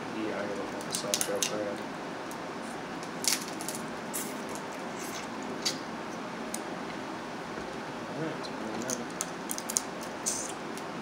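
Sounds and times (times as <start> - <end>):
crab shells cracking: 0.8 - 1.6, 3.0 - 4.8, 8.8 - 10.9.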